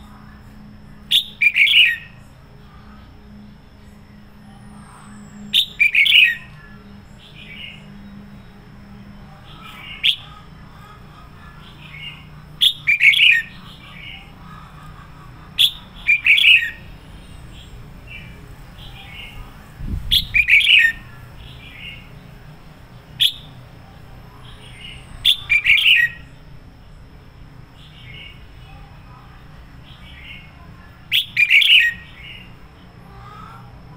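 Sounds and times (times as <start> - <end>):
bird warbling phrases: 1.0 - 2.9, 9.3 - 17.0, 18.1 - 22.1, 24.4 - 26.3, 27.9 - 32.5.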